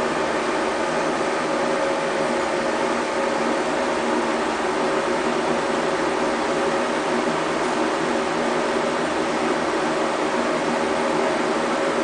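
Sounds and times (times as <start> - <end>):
mechanical hum with hiss: 0.0 - 12.0.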